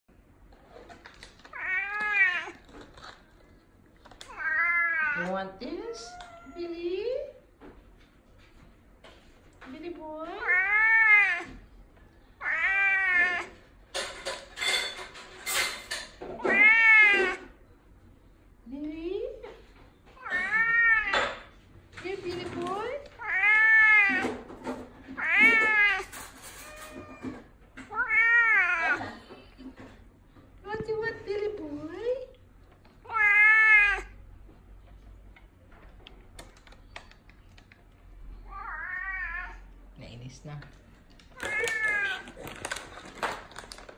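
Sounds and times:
cat meowing: 0:01.4 - 0:02.7, 0:04.2 - 0:06.7, 0:10.4 - 0:11.6, 0:12.4 - 0:13.6, 0:16.4 - 0:17.5, 0:20.2 - 0:21.5, 0:23.2 - 0:24.4, 0:25.1 - 0:29.0, 0:33.0 - 0:34.2, 0:38.4 - 0:39.8, 0:41.4 - 0:42.4.

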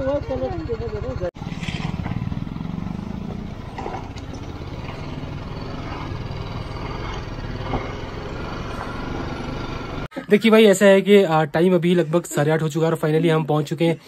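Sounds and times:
motorcycle engine running: 0:00.0 - 0:10.1
road and wind noise: 0:00.0 - 0:10.1.

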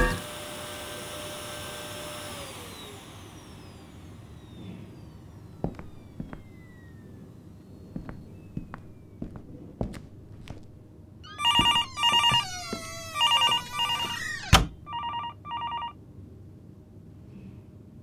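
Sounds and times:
vacuum cleaner motor winding down: 0:00.0 - 0:09.5, 0:11.3 - 0:15.0
knocks or steps: 0:05.6 - 0:06.5, 0:07.9 - 0:14.8.

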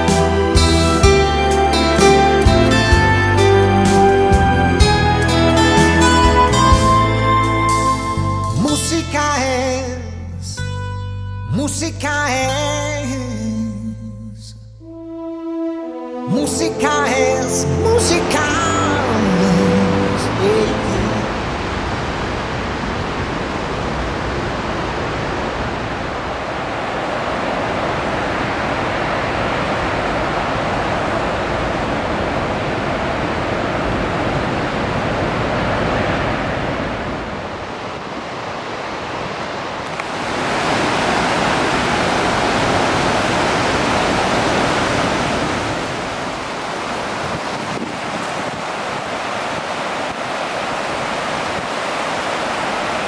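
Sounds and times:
whitewater rushing: 0:16.3 - 0:53.0
wind on microphone: 0:20.9 - 0:53.0.

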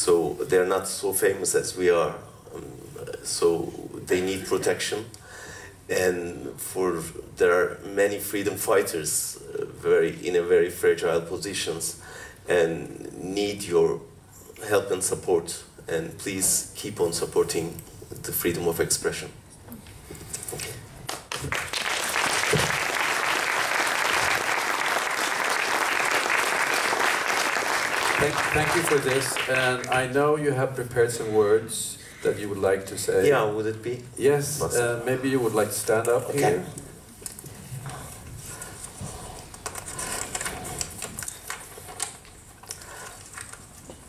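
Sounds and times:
low hall hum: 0:00.0 - 0:44.0
audience applauding: 0:21.1 - 0:30.1.

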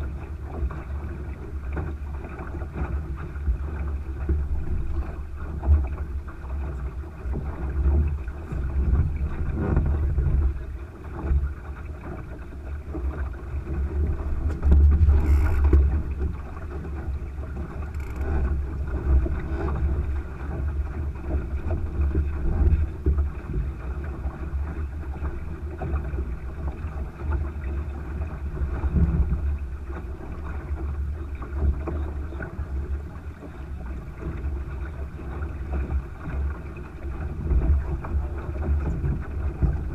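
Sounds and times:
water washing along boat hull: 0:00.0 - 0:39.9
wind gusting on microphone: 0:13.5 - 0:23.7.

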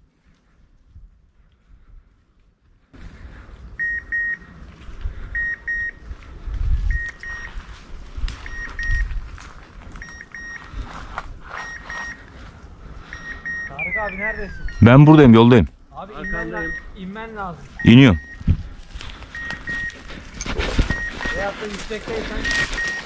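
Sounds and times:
low wind rumble: 0:00.0 - 0:23.0
electronic double beeps: 0:13.2 - 0:15.6, 0:17.8 - 0:18.5
brush rustling: 0:18.4 - 0:23.0.

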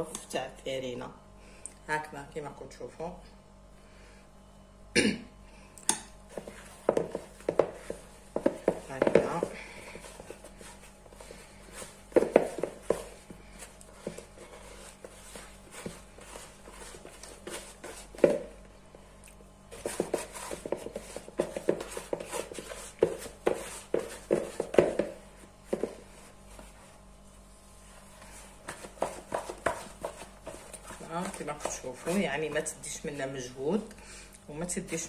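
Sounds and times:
dough slapping and squelching: 0:06.3 - 0:19.0, 0:19.6 - 0:33.6.

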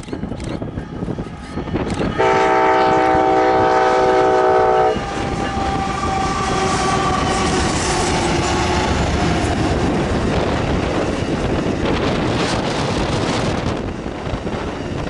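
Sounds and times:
train rolling on rails: 0:00.0 - 0:15.0
train horn: 0:02.0 - 0:09.0.

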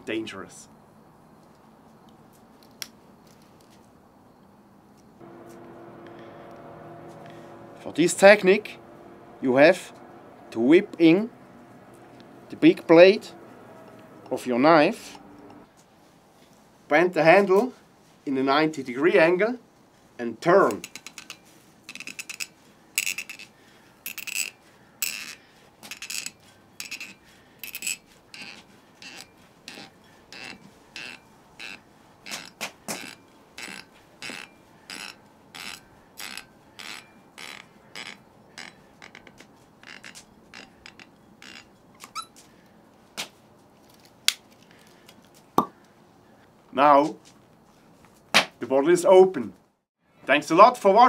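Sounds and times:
cork squeaking in bottle neck: 0:24.1 - 0:42.4.

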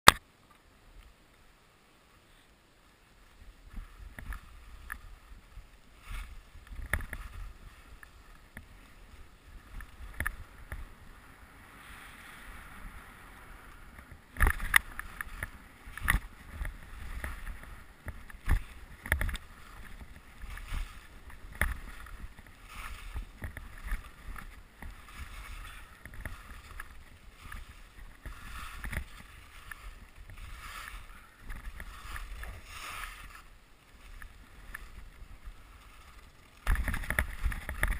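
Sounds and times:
skis hissing over snow: 0:02.1 - 0:14.0, 0:14.8 - 0:37.5.

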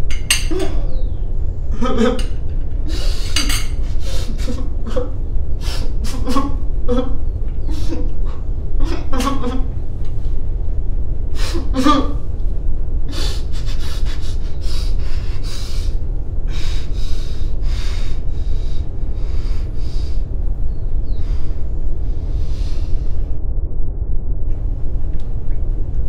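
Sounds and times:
steady low rumble: 0:00.0 - 0:26.0
man laughing and crying: 0:01.7 - 0:05.2.

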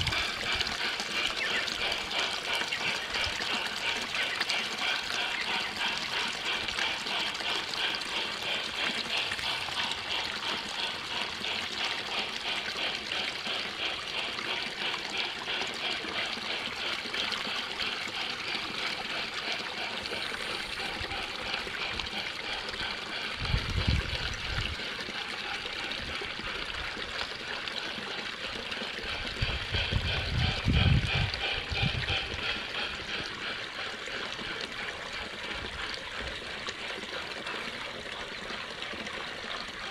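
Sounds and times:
water trickling: 0:00.0 - 0:39.9.

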